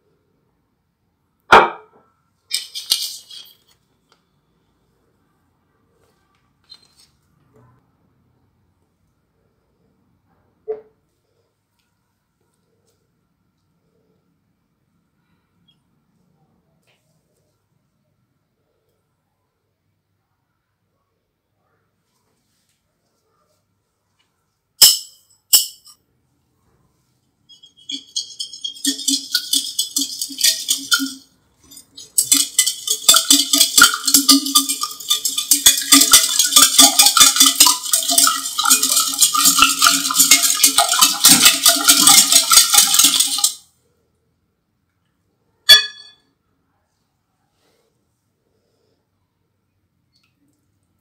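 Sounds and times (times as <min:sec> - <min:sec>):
hand whisk beating in bowl: 0:27.5 - 0:43.6.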